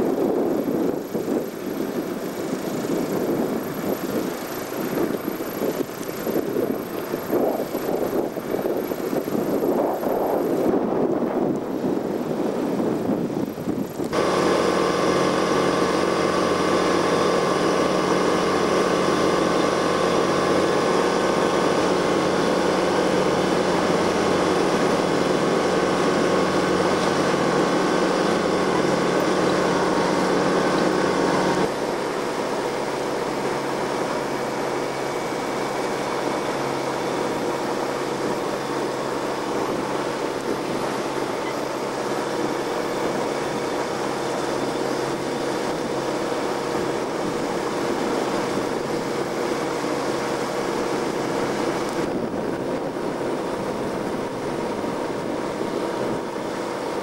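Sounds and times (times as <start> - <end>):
motorboat engine running: 0.0 - 57.0.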